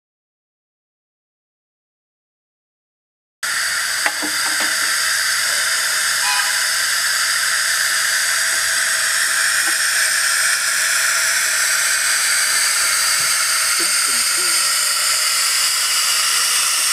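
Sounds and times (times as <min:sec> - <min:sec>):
steam hissing: 0:03.4 - 0:16.9.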